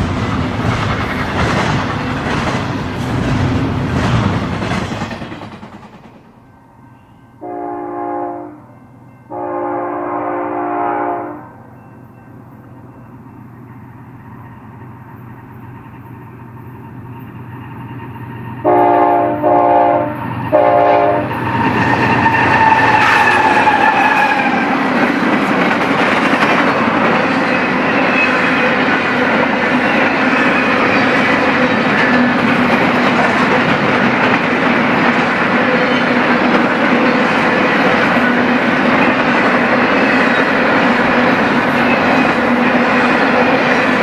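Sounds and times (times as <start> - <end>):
train wheels on rails: 0.0 - 7.7, 11.7 - 44.0
diesel locomotive passing: 0.0 - 44.0
train air horn blasts: 7.4 - 11.7, 18.6 - 21.4.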